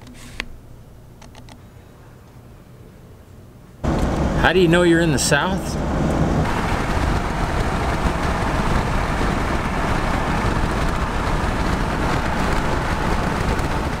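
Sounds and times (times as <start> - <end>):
road and wind noise in car: 3.8 - 14.0.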